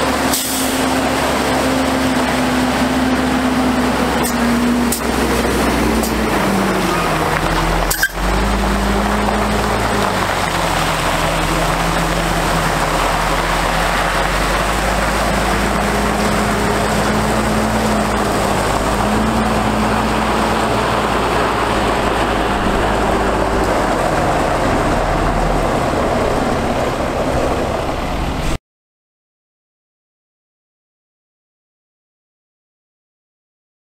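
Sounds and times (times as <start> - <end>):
diesel truck engine running: 0.0 - 28.6
water spraying hiss: 0.2 - 24.5.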